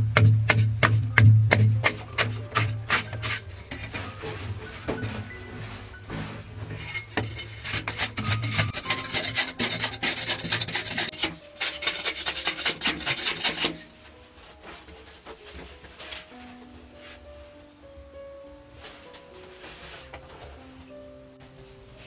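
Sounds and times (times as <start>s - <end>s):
metal blade scraping earth wall: 1.6s - 13.9s.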